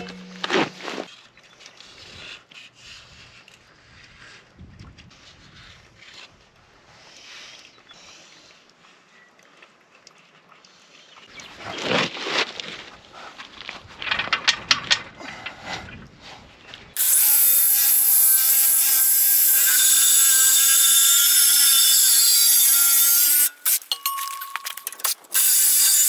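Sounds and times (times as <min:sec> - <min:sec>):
reciprocating saw cutting steel pipe: 0:00.0 - 0:01.1, 0:17.0 - 0:26.0.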